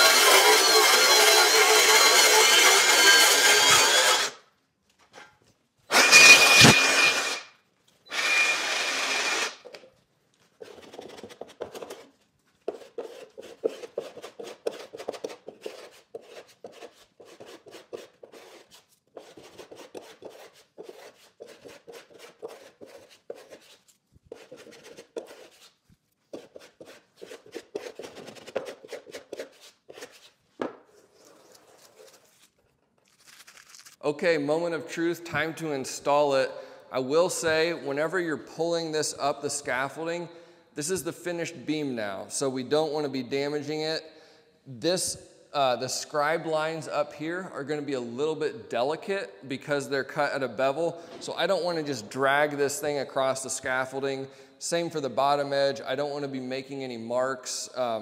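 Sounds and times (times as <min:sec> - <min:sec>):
power tool whining: 0:00.0 - 0:04.4, 0:05.9 - 0:07.5, 0:08.1 - 0:09.7.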